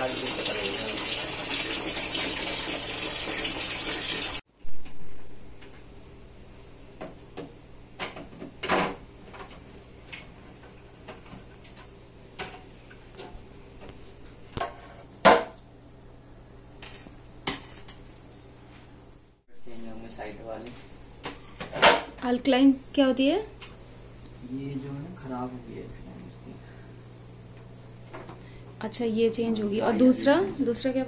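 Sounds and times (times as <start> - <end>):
water running: 0.0 - 4.4.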